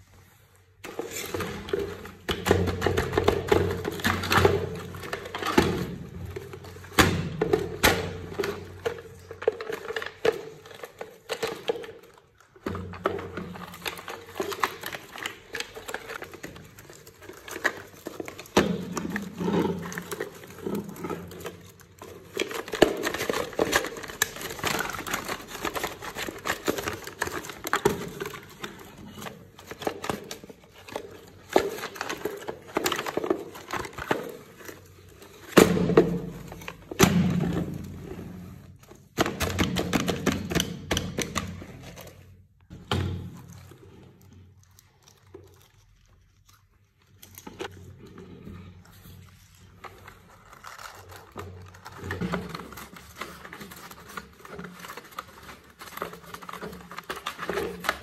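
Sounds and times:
plastic toys knocking together: 1.3 - 34.4, 35.4 - 38.0
plastic mesh bag crinkling: 8.5 - 37.0, 43.4 - 58.0.

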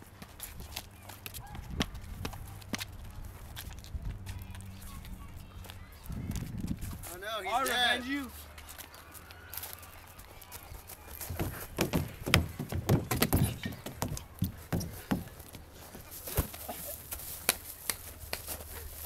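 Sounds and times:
footsteps on wood chips: 2.0 - 19.0.

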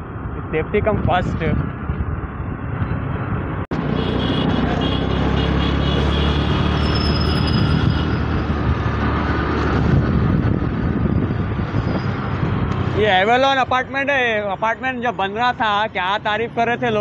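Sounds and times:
vehicle road and engine noise: 0.0 - 17.0
thin high squealing tone: 6.7 - 8.3.

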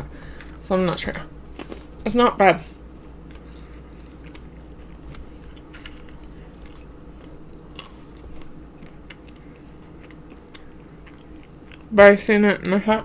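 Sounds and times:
steady low hum: 0.0 - 13.0
chewing grapes: 2.9 - 13.0.

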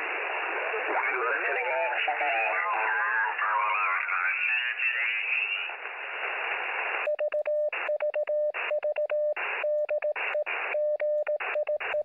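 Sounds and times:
radio static hissing: 0.0 - 7.1, 10.2 - 10.8
morse code beeping: 7.1 - 12.0.

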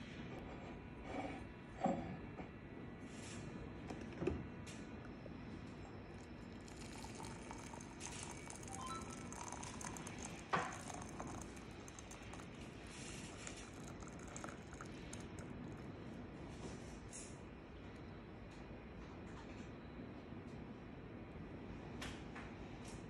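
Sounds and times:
water pouring into mug: 6.1 - 15.9.

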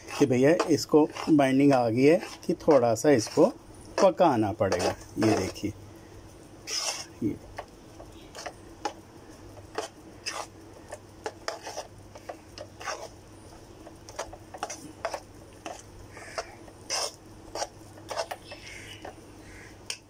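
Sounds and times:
metal spatula scraping a metal pan: 0.0 - 5.7, 6.7 - 7.2, 9.7 - 10.5, 11.2 - 13.1, 14.1 - 19.1.

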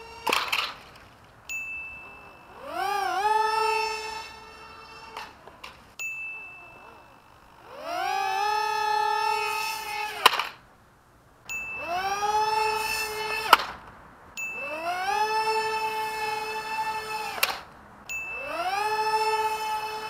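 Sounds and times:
plane crashing on paving: 0.0 - 1.2
drone motors whining: 0.0 - 10.6, 11.5 - 20.0.

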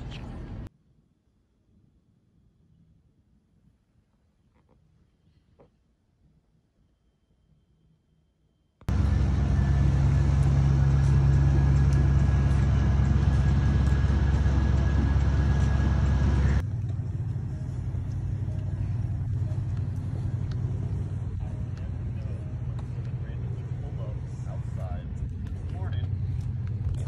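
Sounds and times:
car engine rumbling: 0.0 - 0.7, 8.9 - 27.0.

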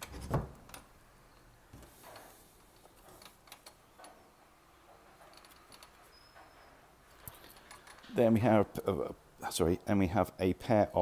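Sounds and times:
wooden cupboard door shutting: 0.0 - 0.8
light clicks and handling noise: 0.0 - 8.2.

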